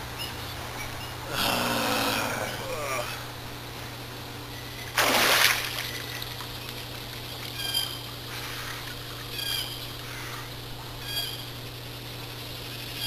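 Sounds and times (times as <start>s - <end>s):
water splashing in a pool: 5.0s - 7.3s.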